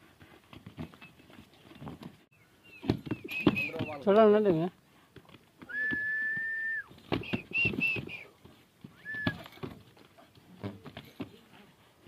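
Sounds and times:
high whistled notes: 3.2s - 4.0s.

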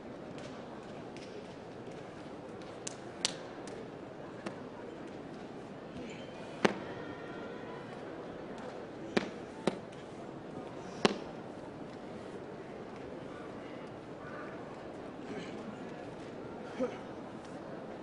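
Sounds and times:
crowd murmur: 0.0s - 18.0s
sharp hand slaps: 2.8s - 3.8s, 9.2s - 9.8s, 11.0s - 11.3s.

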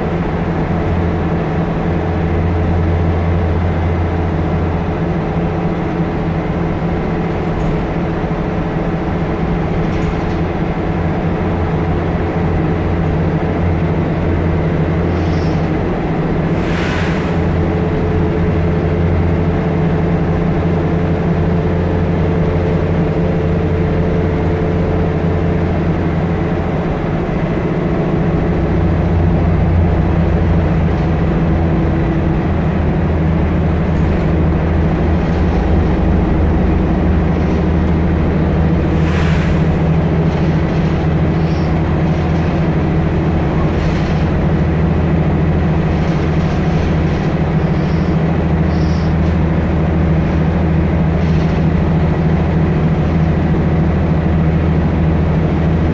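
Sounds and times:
bus engine drone: 0.0s - 55.9s
road noise: 0.0s - 55.9s
short hiss: 16.5s - 17.6s, 38.9s - 39.8s.

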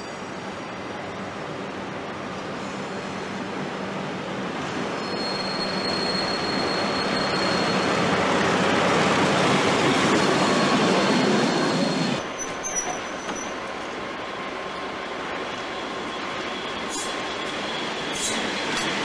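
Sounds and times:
diesel locomotive engine hum: 0.0s - 19.0s
high wheel squeal: 5.0s - 8.1s, 10.4s - 13.6s.

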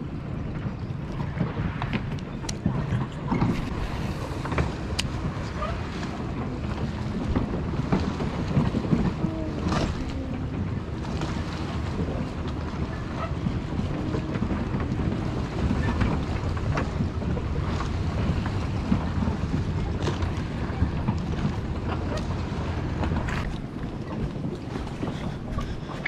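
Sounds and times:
water lapping against a dock: 0.0s - 26.0s
wind rumbling on microphone: 0.0s - 26.0s.

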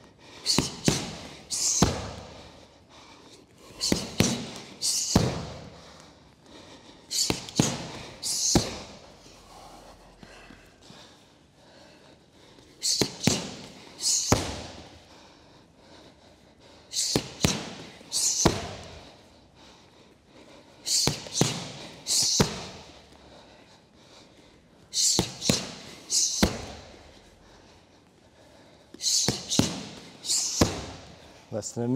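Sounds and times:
punches and kicks hitting pads: 0.5s - 2.4s, 3.8s - 5.7s, 7.2s - 9.0s, 12.8s - 14.9s, 17.0s - 19.0s, 21.0s - 22.9s, 25.1s - 26.9s, 29.1s - 31.2s.

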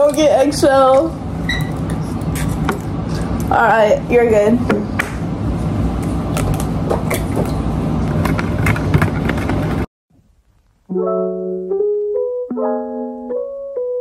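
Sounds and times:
electric piano chords: 10.9s - 14.0s.

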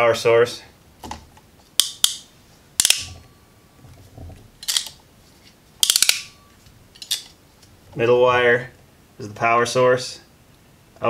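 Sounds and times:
crimping tool clicking: 2.8s - 3.1s, 5.8s - 6.3s.

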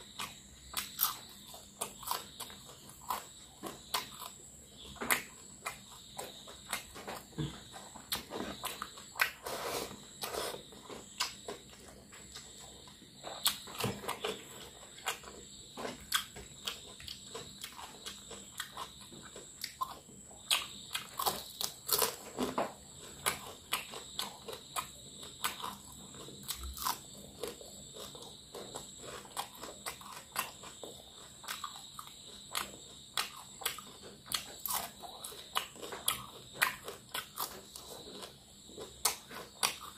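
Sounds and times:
wet chewing: 0.0s - 39.9s
crunchy bites of fried fish: 13.3s - 39.9s.

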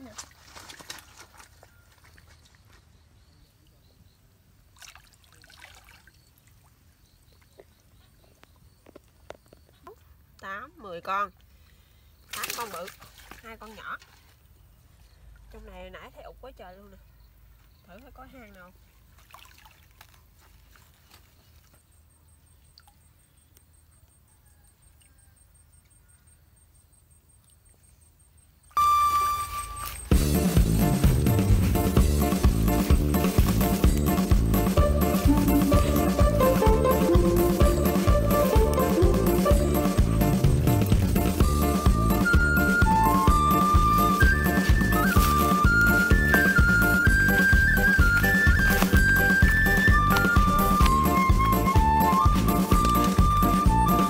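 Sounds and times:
small splashes: 0.0s - 2.8s, 4.6s - 7.9s, 11.4s - 15.7s, 17.9s - 21.8s, 28.7s - 54.0s
water sloshing and trickling: 0.0s - 3.3s, 4.5s - 16.2s, 17.5s - 23.3s, 28.8s - 54.0s
bright chime: 28.8s - 30.1s
background music: 28.8s - 54.0s.

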